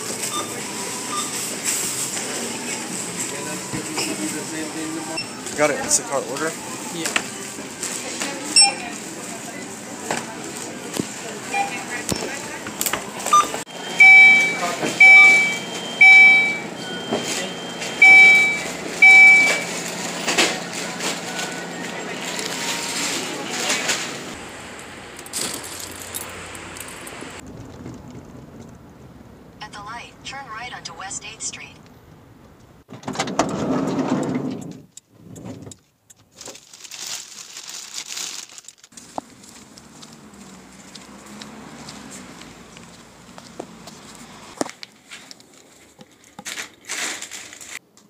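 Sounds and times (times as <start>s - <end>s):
electronic beeps: 8.6s - 9.0s, 11.5s - 12.2s, 13.3s - 19.7s
plastic bags rustling: 25.3s - 26.2s, 36.3s - 41.0s, 44.7s - 47.8s
low rumble: 26.3s - 30.2s.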